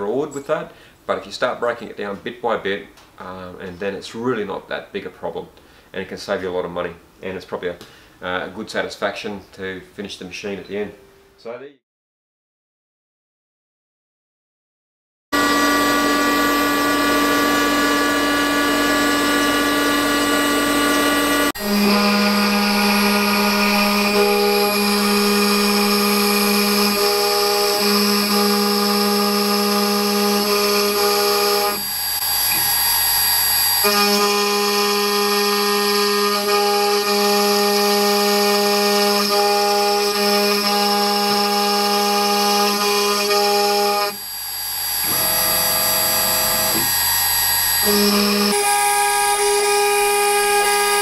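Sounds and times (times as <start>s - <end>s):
router spindle whining: 15.4s - 51.0s.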